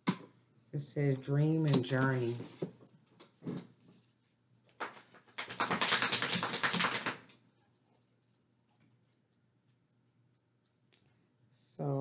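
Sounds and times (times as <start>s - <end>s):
rapid keyboard typing: 5.3s - 7.3s.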